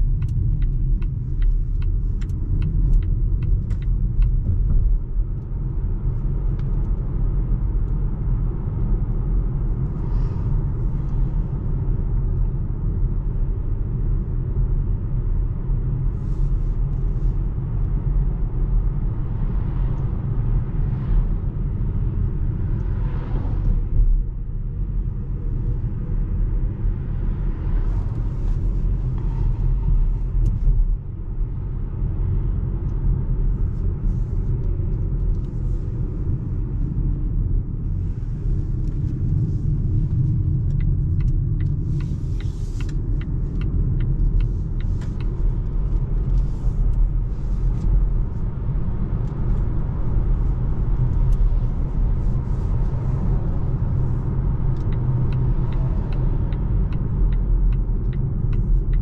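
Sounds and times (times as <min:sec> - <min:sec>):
tyre and road rumble in car: 0:00.0 - 0:59.0.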